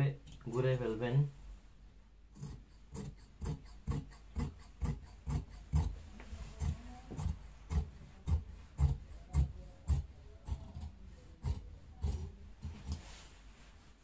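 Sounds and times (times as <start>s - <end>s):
shears cutting cloth: 2.4s - 13.2s.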